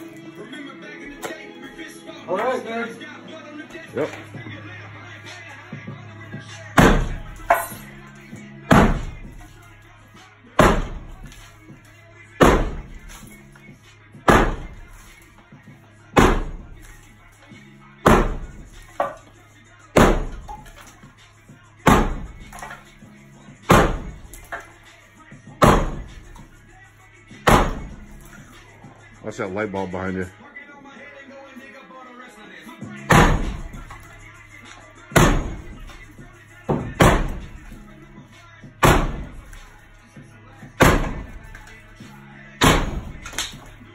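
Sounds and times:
sledgehammer striking brick: 0:06.8 - 0:07.7, 0:08.7 - 0:09.4, 0:10.6 - 0:11.4, 0:12.4 - 0:13.2, 0:14.3 - 0:14.9, 0:16.2 - 0:16.8, 0:18.0 - 0:19.2, 0:20.0 - 0:20.7, 0:21.8 - 0:22.8, 0:23.7 - 0:24.7, 0:25.6 - 0:26.3, 0:27.4 - 0:28.2, 0:33.1 - 0:34.0, 0:35.2 - 0:36.0, 0:36.7 - 0:37.8, 0:38.8 - 0:39.6, 0:40.8 - 0:41.6, 0:42.6 - 0:43.7.

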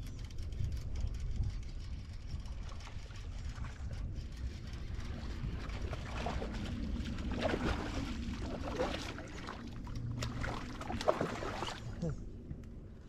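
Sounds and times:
wind rumble on microphone: 0:00.0 - 0:13.0
water splashing and churning: 0:02.3 - 0:12.5.

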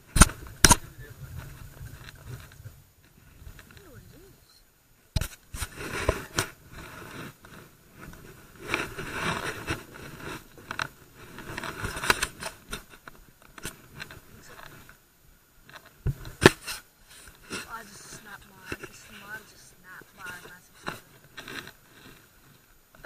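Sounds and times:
knocks and scrapes of gear handling: 0:05.2 - 0:14.9.

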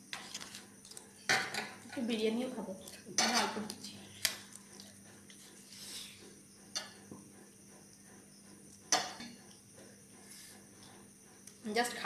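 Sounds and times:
metal spoon clinking on dishes: 0:03.2 - 0:03.6.

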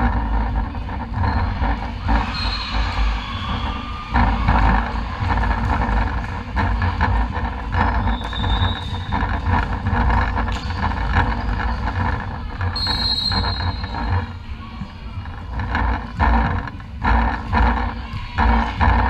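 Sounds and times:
sneakers squeaking on wooden court: 0:07.8 - 0:14.2.

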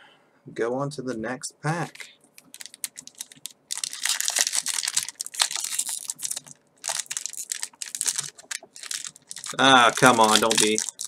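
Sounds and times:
foil wrapper crinkling: 0:02.4 - 0:11.0.

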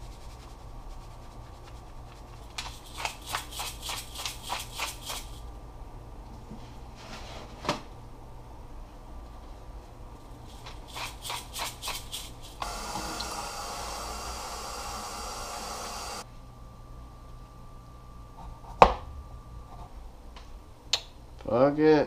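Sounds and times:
spice grinder rasping: 0:01.6 - 0:05.4, 0:10.5 - 0:16.2.

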